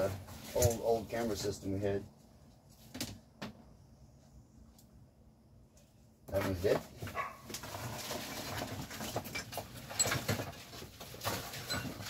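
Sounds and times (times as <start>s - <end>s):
rummaging through a box: 6.4s - 12.0s.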